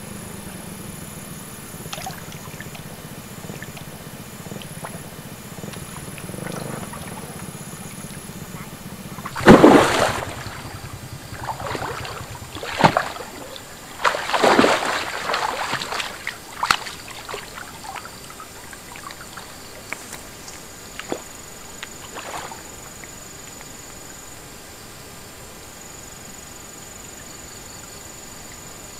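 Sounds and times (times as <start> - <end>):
fish splashing in water: 1.8 - 23.2.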